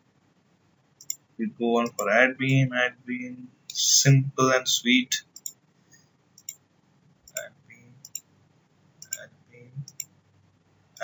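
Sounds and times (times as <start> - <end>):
computer mouse clicking: 1.0 - 1.2, 1.8 - 2.6, 5.3 - 5.6, 6.4 - 6.6, 7.3 - 8.2, 9.0 - 9.2, 9.8 - 10.1.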